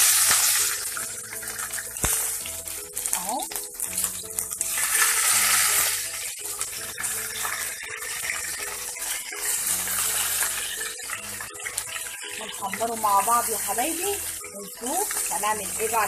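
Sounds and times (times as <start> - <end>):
peppers sizzling in hot oil: 0.0 - 16.0.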